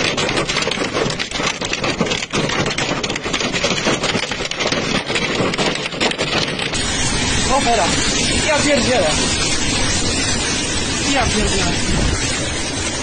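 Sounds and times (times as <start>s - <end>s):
hail clattering: 0.0s - 13.0s
heavy rain rushing: 6.6s - 13.0s.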